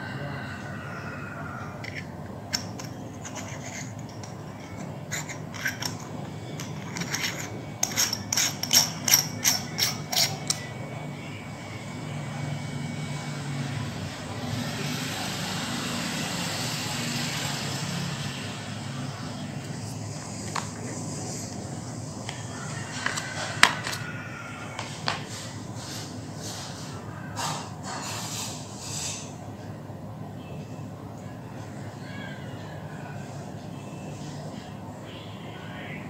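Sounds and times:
clicks and scrapes: 1.8s - 10.7s.

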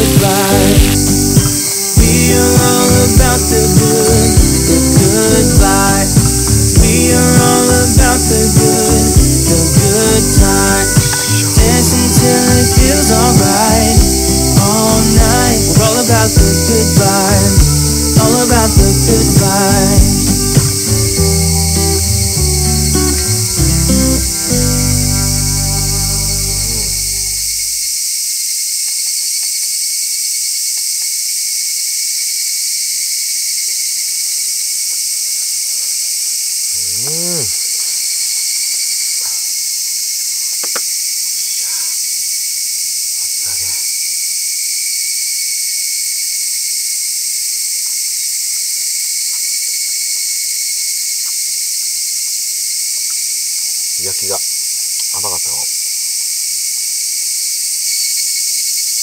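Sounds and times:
insects chirring: 0.0s - 59.0s
person murmuring: 2.0s - 20.3s, 25.7s - 27.5s, 36.7s - 37.6s, 43.4s - 43.9s, 54.0s - 54.4s, 55.1s - 55.7s.

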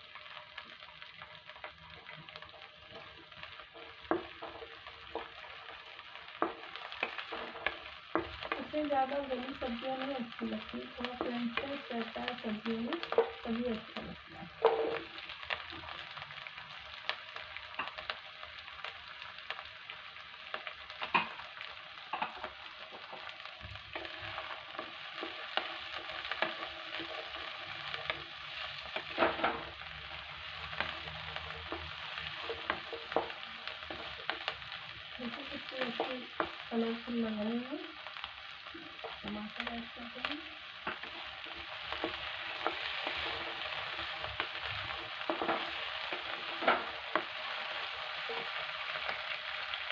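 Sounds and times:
vegetables sizzling in oil: 0.0s - 49.9s
spatula scraping a pan: 2.0s - 8.7s.

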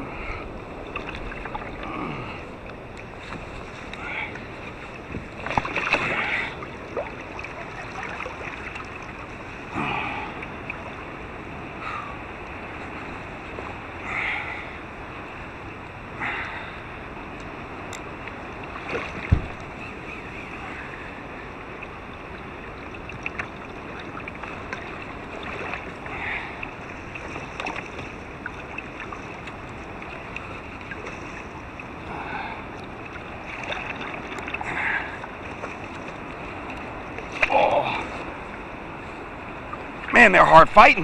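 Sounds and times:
water lapping against kayak hull: 0.0s - 41.0s
wind on microphone: 18.8s - 19.9s.

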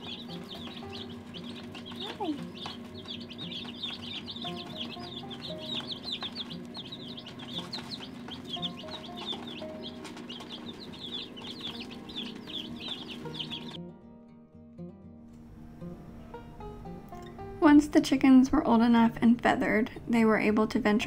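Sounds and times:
chicks peeping: 0.0s - 13.8s.

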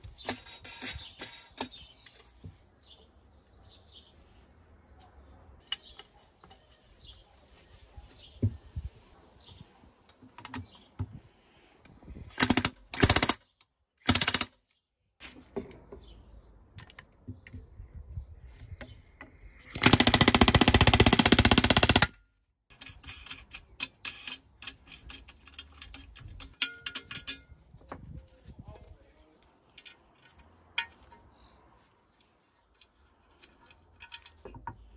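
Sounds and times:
metal parts clicking and knocking: 0.0s - 2.5s, 19.2s - 27.7s, 29.6s - 31.3s, 32.7s - 34.9s.

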